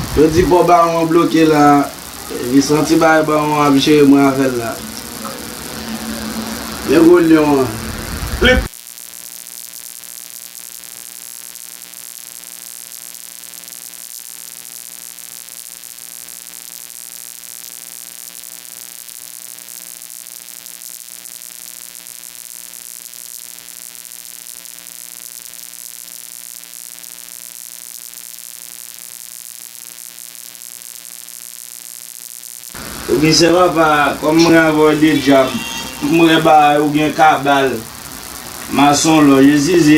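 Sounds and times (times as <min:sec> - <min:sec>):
constant hiss: 0:00.0 - 0:08.7, 0:32.4 - 0:39.9
electrical hum: 0:00.0 - 0:08.7, 0:32.8 - 0:39.9.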